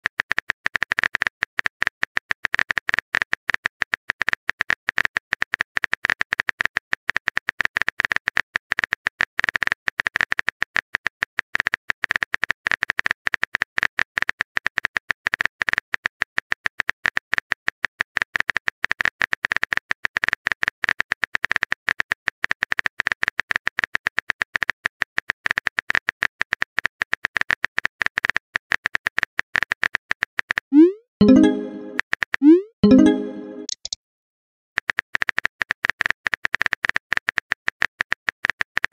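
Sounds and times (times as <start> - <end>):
phone keyboard clicks: 33.6 - 34.0.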